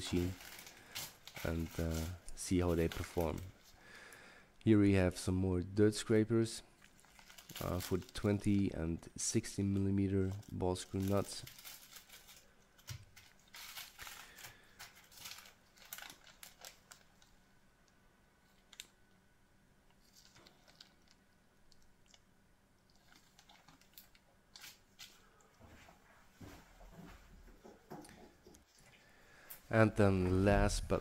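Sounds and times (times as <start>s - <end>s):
plastic bag crinkling: 0.0s - 3.8s, 6.8s - 8.7s, 9.6s - 17.3s, 20.0s - 22.2s, 22.9s - 25.3s.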